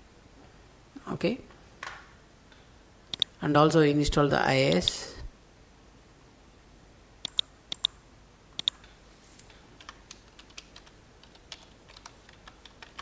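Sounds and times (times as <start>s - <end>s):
computer keyboard typing: 8.6s - 8.9s, 9.8s - 13.0s.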